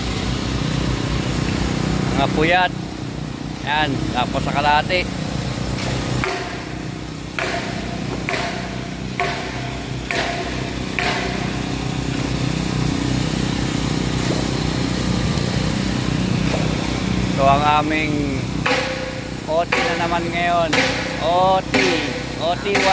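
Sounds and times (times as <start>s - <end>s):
machine engine running: 0.0s - 22.9s
short knocks: 7.4s - 11.6s.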